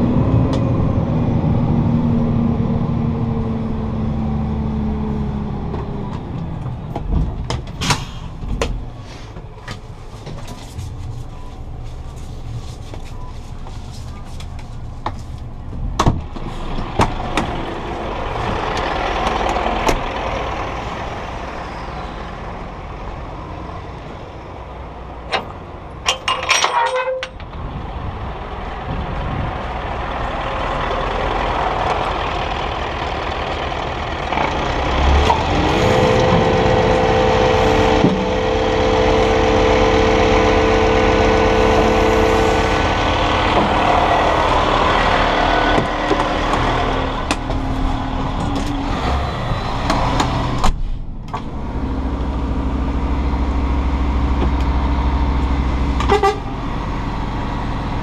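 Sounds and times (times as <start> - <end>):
diesel engine idling: 10.8 - 26.1, 27.5 - 58.0
steady pitched drone: 35.5 - 48.8.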